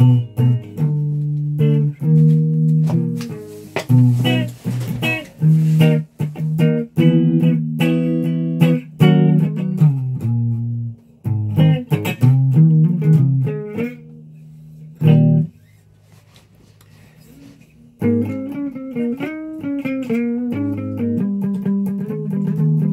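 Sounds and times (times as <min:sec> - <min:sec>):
electric guitar picked notes: 0:00.0 - 0:15.5, 0:18.0 - 0:22.9.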